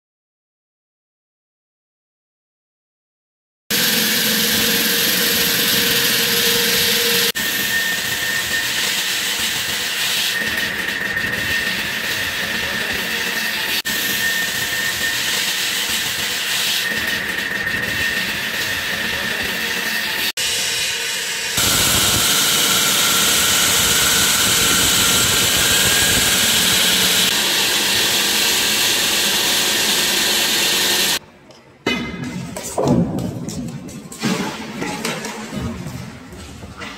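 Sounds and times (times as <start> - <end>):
concrete saw whining: 3.7 - 31.2.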